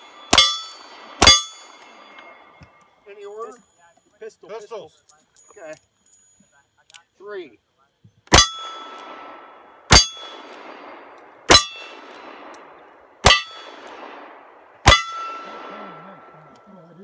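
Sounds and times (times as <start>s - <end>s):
steel target clanging and ringing: 0.0s - 4.4s, 8.3s - 10.8s, 11.5s - 12.4s, 13.2s - 14.0s, 14.8s - 16.7s.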